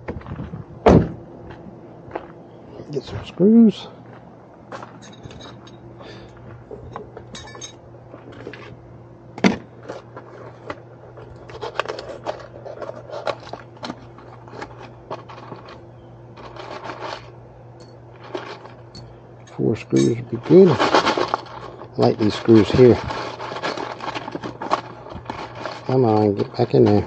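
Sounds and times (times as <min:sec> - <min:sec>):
faint steady hum: 0:00.0 - 0:27.0
screws clinking and rattling: 0:05.0 - 0:05.8, 0:06.8 - 0:07.8.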